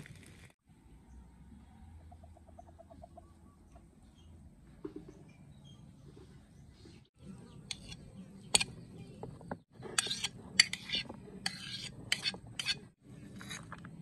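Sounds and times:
food scraped off plate: 0:09.8 - 0:13.8.

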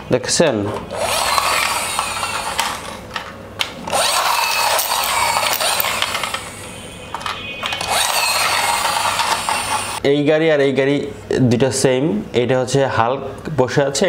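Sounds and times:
toy car spring motor whirring: 0:00.9 - 0:03.0, 0:03.9 - 0:10.0.

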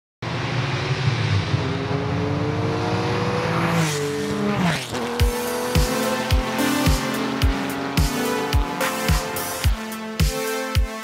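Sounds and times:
car passing whoosh: 0:00.2 - 0:08.5
car engine revving: 0:00.2 - 0:10.2.

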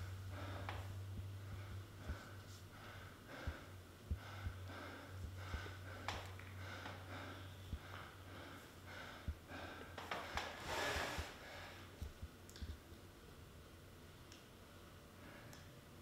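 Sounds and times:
man breathing hard: 0:00.0 - 0:12.0.

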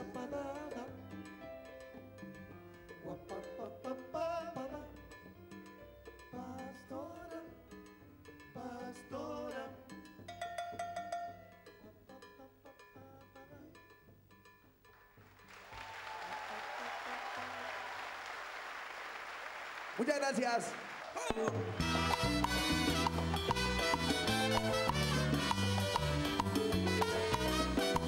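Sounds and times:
audience applause: 0:15.5 - 0:22.4
latin dance orchestra playing: 0:21.2 - 0:28.0.

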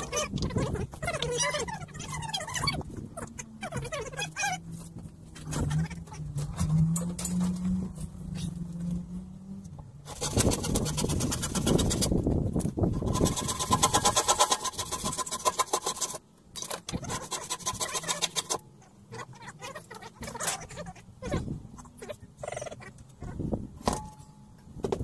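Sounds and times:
handsaw cutting wood: 0:10.0 - 0:12.1, 0:13.0 - 0:18.6.

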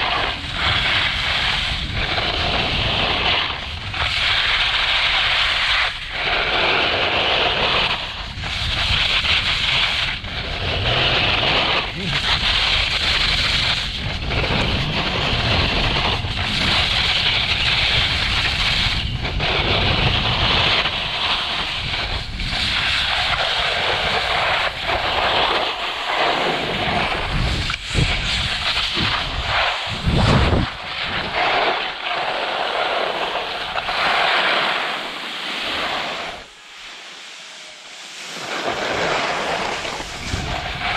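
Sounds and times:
wind buffeting microphone: 0:00.0 - 0:04.5, 0:06.2 - 0:32.0, 0:38.4 - 0:40.9
skis scraping on snow: 0:00.0 - 0:40.9.

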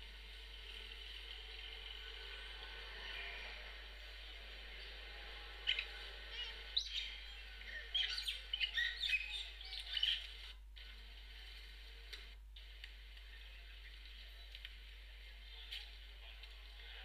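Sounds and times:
distant birdsong: 0:00.1 - 0:10.5
birds chirping quick calls: 0:05.6 - 0:10.5.

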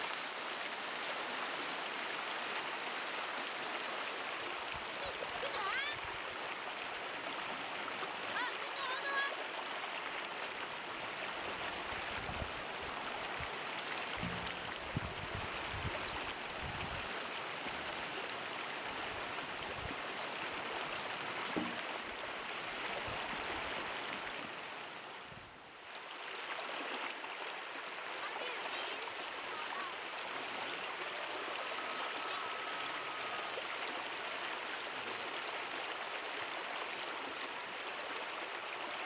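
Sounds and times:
stream water running: 0:00.0 - 0:39.0
low thumps: 0:14.2 - 0:15.1.

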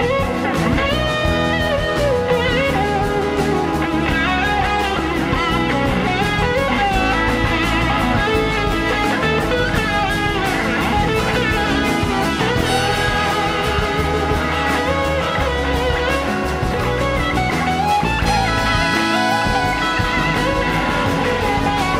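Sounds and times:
electric slide guitar solo: 0:00.0 - 0:21.9
live band with drums: 0:00.0 - 0:21.9.

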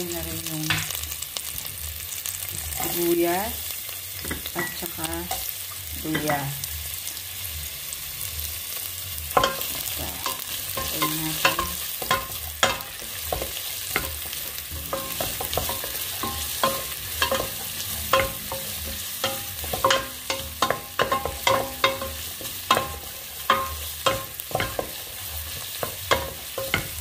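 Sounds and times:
oil sizzling: 0:00.0 - 0:27.0
spatula knocking and scraping pot: 0:09.3 - 0:27.0.

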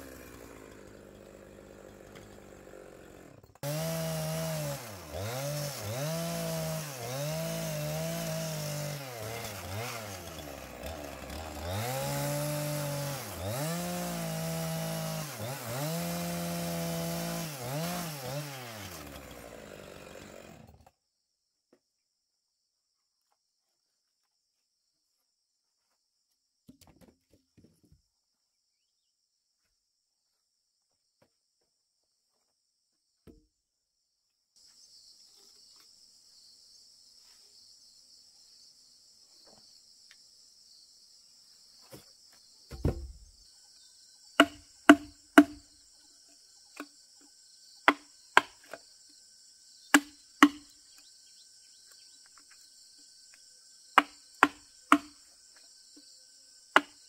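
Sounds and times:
insects chirring: 0:34.2 - 0:57.0
dull thump: 0:42.7 - 0:43.4
hammer striking chisel into wood: 0:44.4 - 0:45.6.

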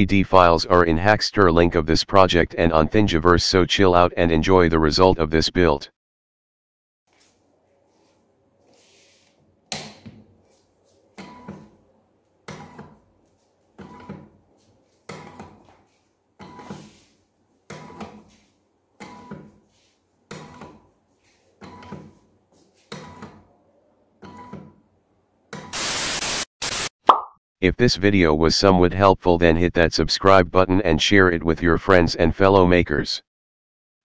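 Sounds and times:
loud hiss burst: 0:25.8 - 0:26.9.

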